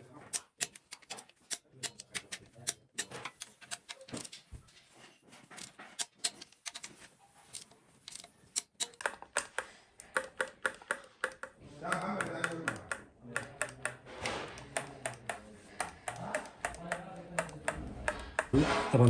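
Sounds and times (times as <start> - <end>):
ratchet wrench clicking: 0.3 - 4.3, 7.5 - 18.6.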